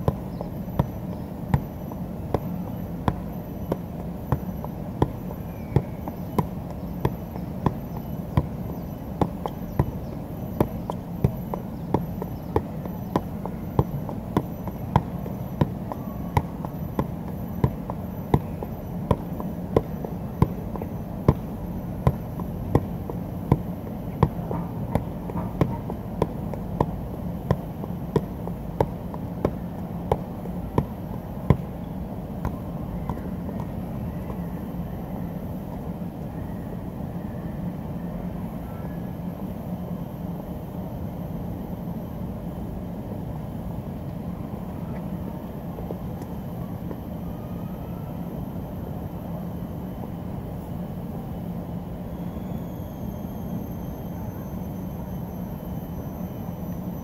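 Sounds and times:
soccer ball thumps on foot: 0.0 - 2.5, 3.1 - 31.7
low background hum: 0.0 - 57.0.

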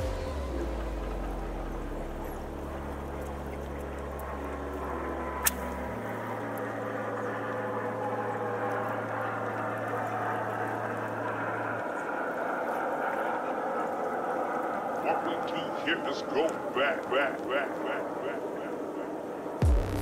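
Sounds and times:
low sustained notes: 0.0 - 20.0
fishing rod cast click: 5.4 - 5.8.

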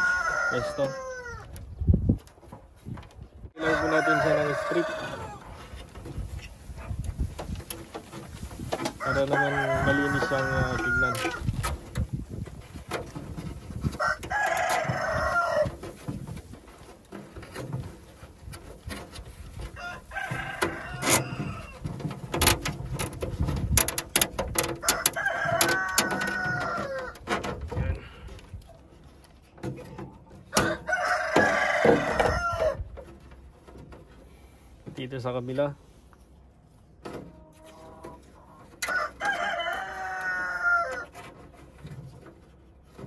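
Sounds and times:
rooster crowing: 0.0 - 1.5, 3.6 - 5.6, 9.0 - 11.4, 14.0 - 15.8, 19.8 - 21.8, 24.8 - 27.2, 30.5 - 32.8, 38.8 - 41.1
wire and cable tie rustling: 5.4 - 31.9.

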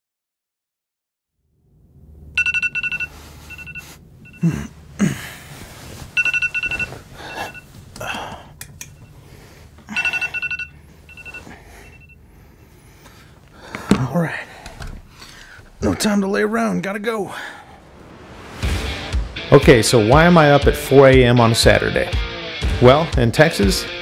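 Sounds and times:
phone alarm beeping: 2.4 - 4.6, 6.1 - 7.7, 9.9 - 12.3
rustling: 2.6 - 8.0
person groaning: 4.4 - 5.5.

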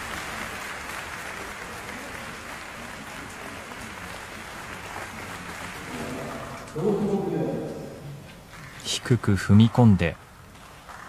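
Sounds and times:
sparse crowd clapping: 0.0 - 8.9, 10.5 - 11.0.

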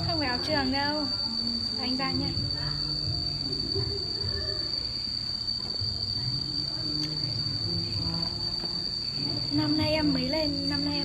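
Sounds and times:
steady high-pitched whine: 0.0 - 11.0.

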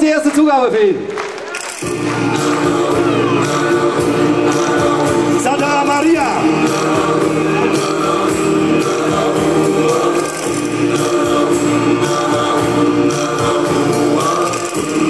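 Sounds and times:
choir-like backing voices: 1.7 - 15.0
steady beat: 1.7 - 15.0.

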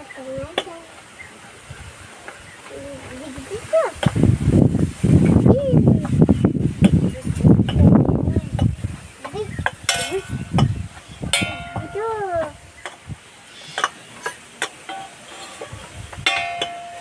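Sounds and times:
ringing metallic clinks: 16.3 - 17.0.

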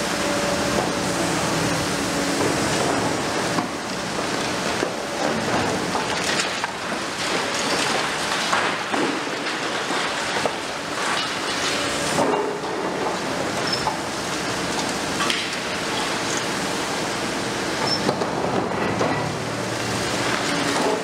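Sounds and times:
falling rubble: 5.4 - 12.7.

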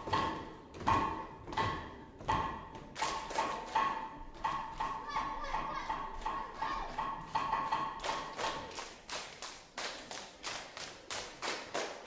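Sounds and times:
children clapping and slapping: 0.0 - 12.0
children chanting: 4.7 - 7.5.

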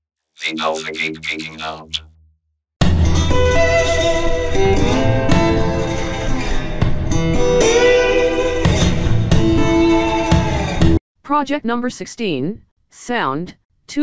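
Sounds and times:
steady bass: 0.4 - 2.2.

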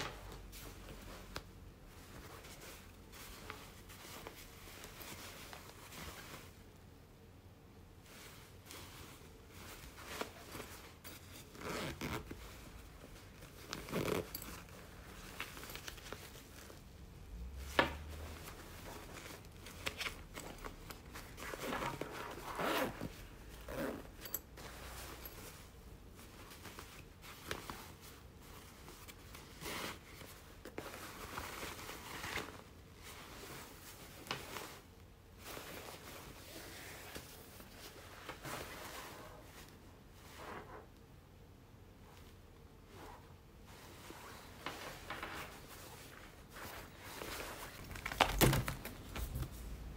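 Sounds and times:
nylon fabric rustling: 0.0 - 6.8, 7.7 - 41.0, 42.0 - 49.9
zippers pulled open and shut: 11.5 - 12.4, 13.7 - 14.7, 21.6 - 24.4.

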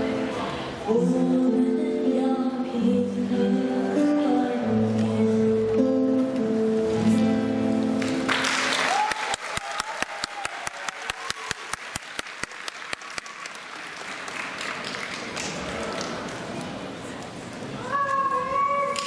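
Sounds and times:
woman singing: 0.0 - 6.3
acoustic guitar: 0.0 - 8.8
audience applauding: 8.0 - 16.8.

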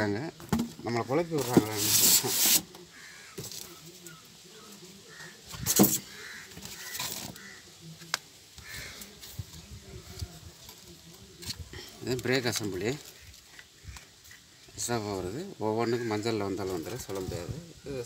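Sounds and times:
cardboard packing rustling: 1.3 - 2.8
loud scrape: 1.4 - 2.7.

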